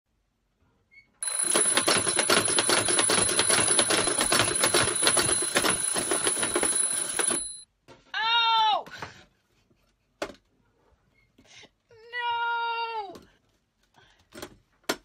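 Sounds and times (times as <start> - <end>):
alarm clock ringing: 1.2 - 7.7.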